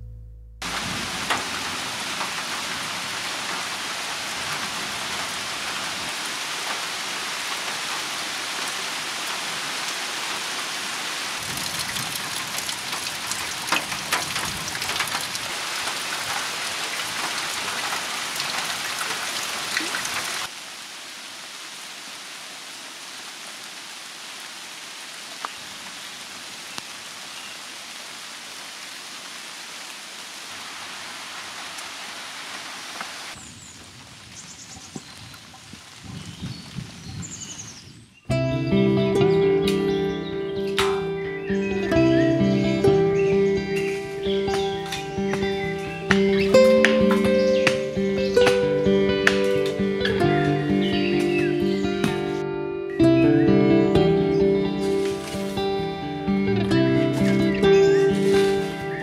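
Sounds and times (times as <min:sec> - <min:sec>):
hiss of falling water: 0:00.6 - 0:37.8, 0:54.2 - 0:56.4, 0:57.1 - 0:59.0
water drops tapping: 0:44.4 - 0:50.3.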